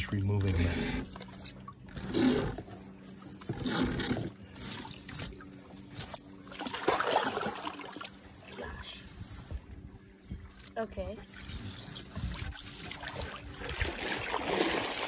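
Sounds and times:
water trickling and splashing: 0.0 - 15.0.

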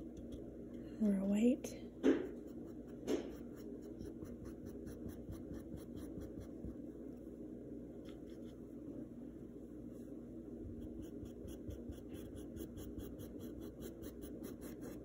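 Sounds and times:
paintbrush scratching on canvas: 2.4 - 6.8, 10.8 - 15.0.

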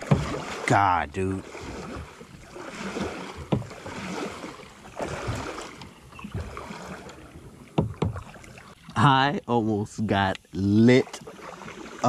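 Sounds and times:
sharp knocks on hull: 0.0 - 0.7, 2.8 - 6.6, 7.7 - 8.4
water splashing from paddle strokes: 0.0 - 9.3, 10.0 - 12.0.

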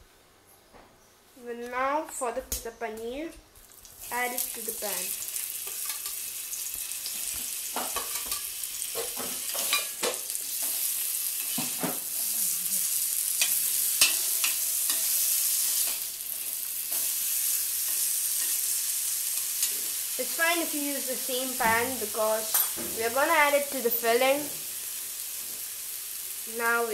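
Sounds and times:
cheese sizzling on a pan: 3.6 - 26.9
spatula scraping a pan: 7.8 - 12.0.

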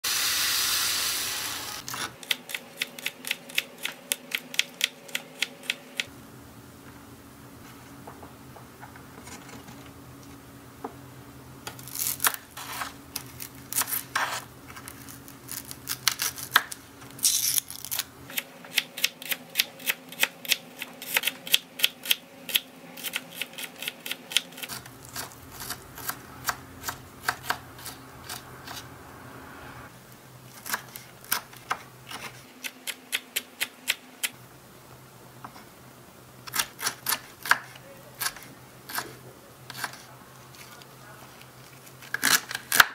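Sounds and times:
faint steady hum: 0.3 - 42.8
knife chopping on wooden board: 24.7 - 28.4.

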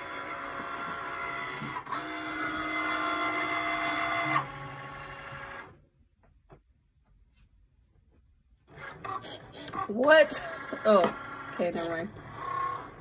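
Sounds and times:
cutting machine motors whining: 0.0 - 5.8, 8.7 - 13.0.

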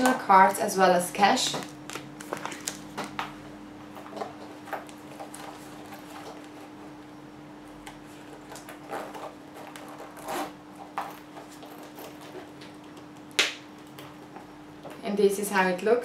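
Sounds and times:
faint steady hum: 0.0 - 16.0
plastic cards sliding: 1.6 - 2.9.

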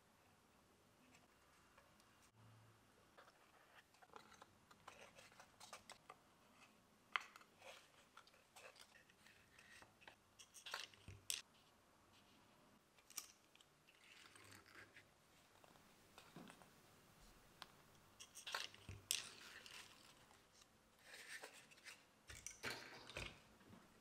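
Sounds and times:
small clicks and scratches of parts: 3.1 - 12.3, 12.9 - 16.7, 17.6 - 23.4.

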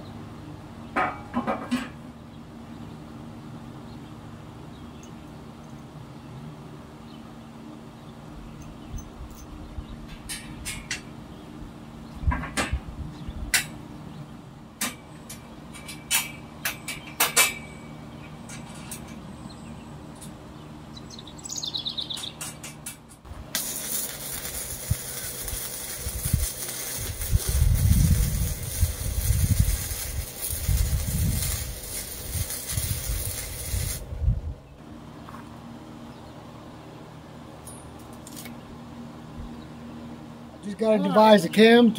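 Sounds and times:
arc welder hissing: 23.3 - 34.2.

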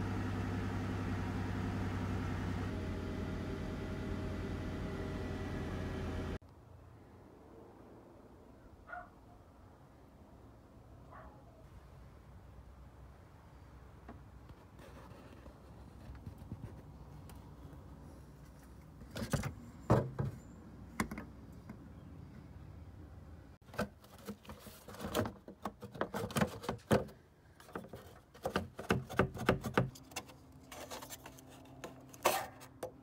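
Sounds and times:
hands handling plastic parts: 23.6 - 33.0.

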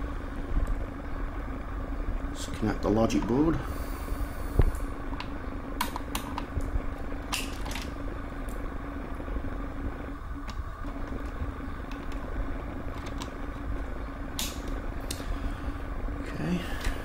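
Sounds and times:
steady low hum: 0.0 - 17.0
cable clicks and rattles: 5.2 - 7.9, 10.4 - 15.2.

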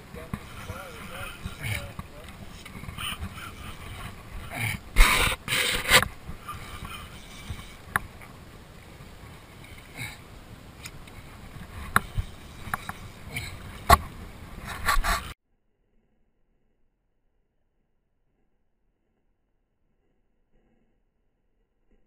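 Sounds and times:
water noise: 0.0 - 15.3
wind noise: 0.0 - 15.4.

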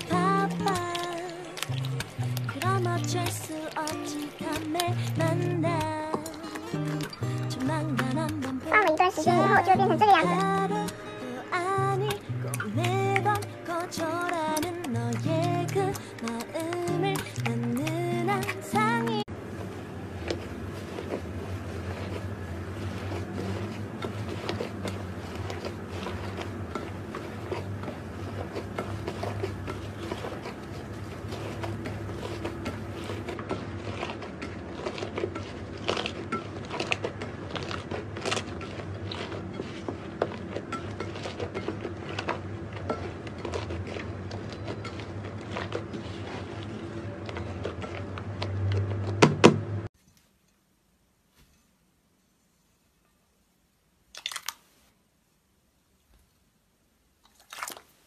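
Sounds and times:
squishy slime crackling and popping: 0.0 - 11.0.

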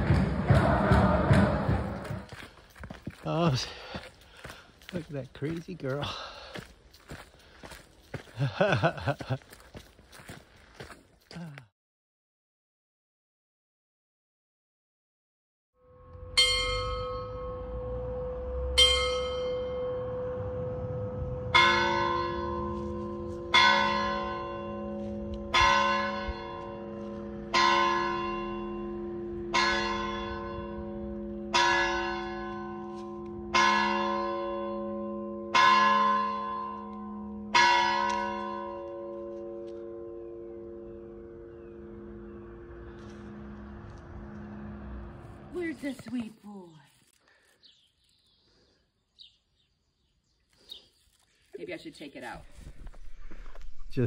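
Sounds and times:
higher bell strokes: 15.8 - 42.4
lower bell striking: 16.0 - 42.5.

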